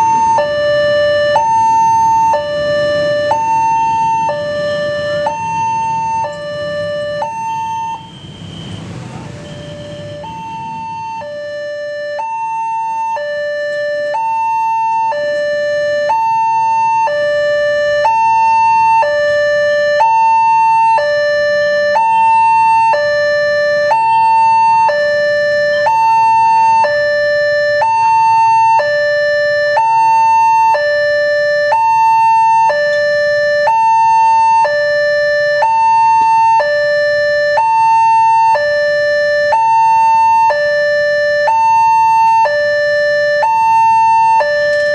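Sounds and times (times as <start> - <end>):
level crossing two-tone alarm: 0.0 - 44.9.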